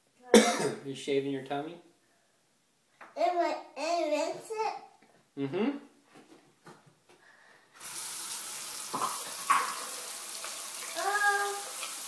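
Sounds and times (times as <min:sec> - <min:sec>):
sink tap running: 0:07.8 - 0:12.0
toy razor rinsed under water: 0:07.8 - 0:12.0.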